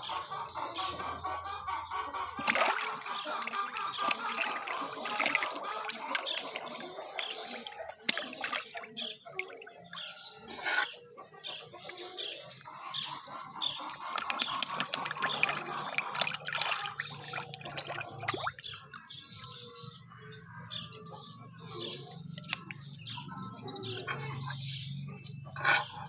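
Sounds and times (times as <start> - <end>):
fish splashing and slurping: 2.3 - 19.9, 22.3 - 22.9.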